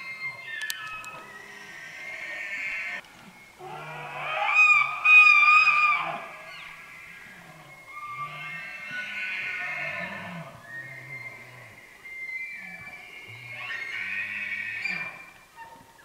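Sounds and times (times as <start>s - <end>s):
elk bugling: 3.6s - 16.0s.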